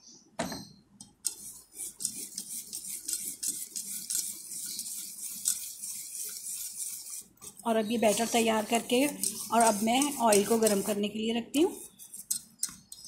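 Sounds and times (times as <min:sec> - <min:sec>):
whisk beating batter in bowl: 0:01.1 - 0:13.0.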